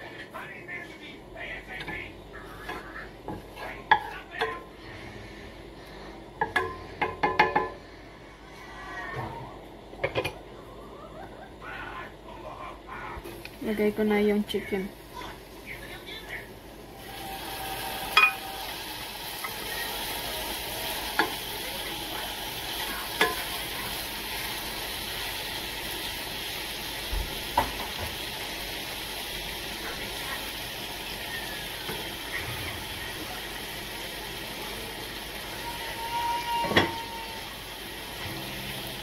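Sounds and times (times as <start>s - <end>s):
wooden spatula knocking on pan: 6.4s - 7.8s, 27.6s - 28.2s
chicken sizzling in a frying pan: 16.7s - 39.0s.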